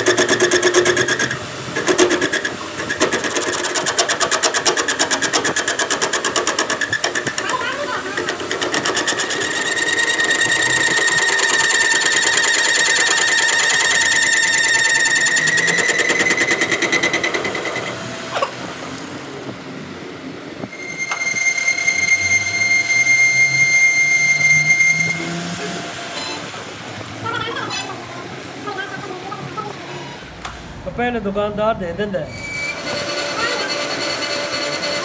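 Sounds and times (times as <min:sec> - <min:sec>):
metal lathe tool bit squealing: 0:00.0 - 0:18.6, 0:20.7 - 0:26.5, 0:32.3 - 0:35.0
lathe chatter: 0:00.0 - 0:30.1, 0:32.6 - 0:35.0.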